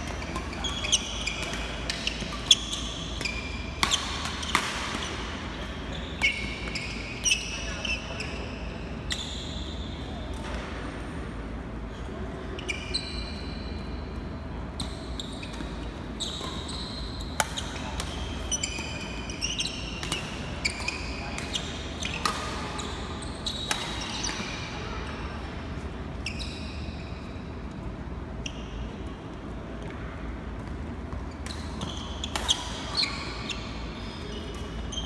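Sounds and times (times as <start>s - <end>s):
shoes squeaking on court floor: 0.0s - 9.8s, 14.8s - 24.7s, 26.2s - 27.5s, 30.6s - 35.0s
racket striking shuttlecock: 1.4s - 5.1s.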